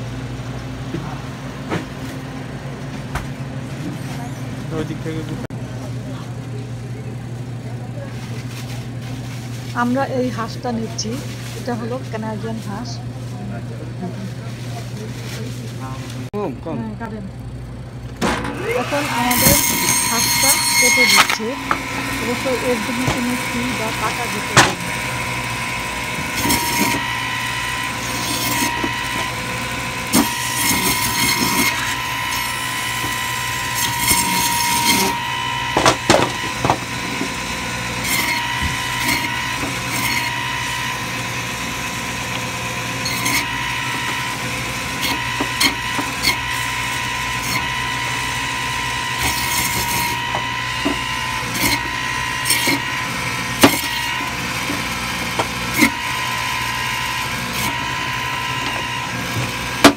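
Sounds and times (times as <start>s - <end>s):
band saw whining: 17.5s - 59.9s
saw crunching through bone: 18.9s - 59.9s.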